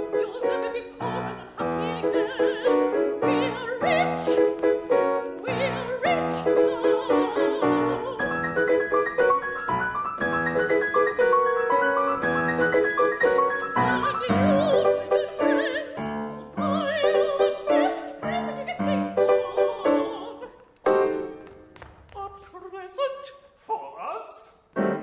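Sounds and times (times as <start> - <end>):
piano chords: 0.0 - 21.8, 24.8 - 25.0.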